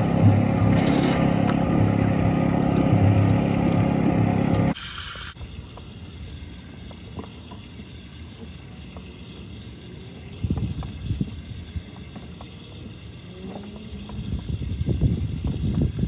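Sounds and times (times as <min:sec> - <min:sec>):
water gurgling in sewer pipe: 0:05.1 - 0:16.0.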